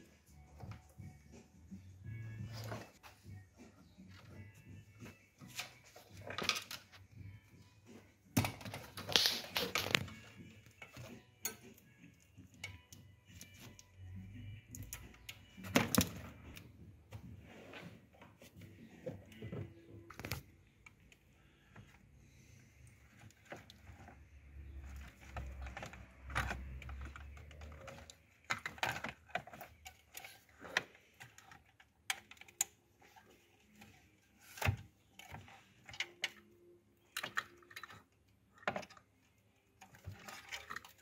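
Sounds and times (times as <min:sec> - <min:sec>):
plastic plugs and wires rattling: 0:05.4 - 0:07.2, 0:08.3 - 0:16.7, 0:18.5 - 0:41.0
plastic clatter: 0:23.1 - 0:36.5.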